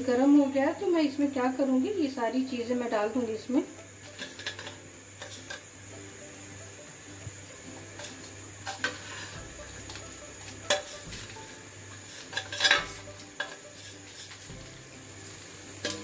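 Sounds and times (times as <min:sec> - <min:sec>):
spices sizzling in hot oil: 0:00.0 - 0:16.0
steel plate scraping metal pan: 0:04.1 - 0:05.6, 0:08.0 - 0:14.5.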